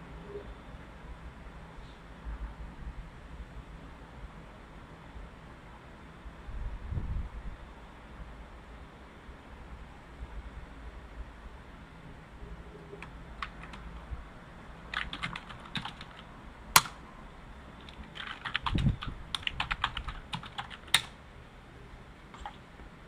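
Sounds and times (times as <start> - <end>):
typing on a computer keyboard: 13.0 - 14.1, 14.9 - 17.0, 17.8 - 21.2, 22.3 - 22.6.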